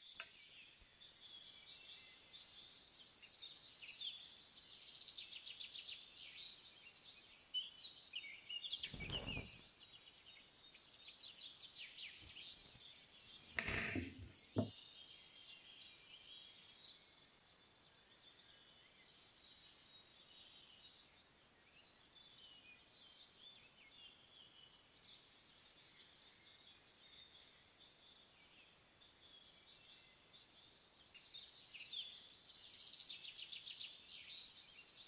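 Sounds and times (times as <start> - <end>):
birds chirping: 8.4 - 15.3
knife knocking on cutting board: 13.6 - 14.7.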